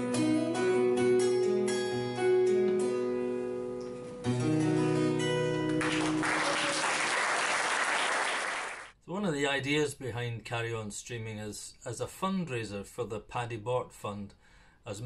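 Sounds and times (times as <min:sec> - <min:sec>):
acoustic guitar: 0:00.0 - 0:06.2
audience applauding: 0:05.7 - 0:08.9.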